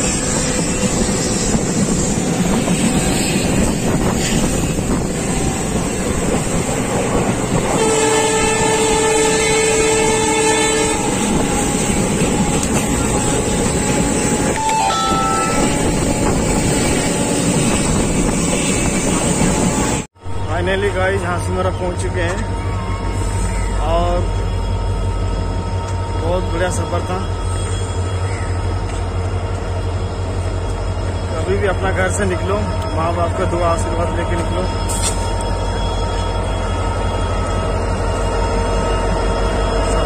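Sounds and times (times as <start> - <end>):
train rumbling on rails: 0.0 - 40.0
train horn: 7.7 - 16.3.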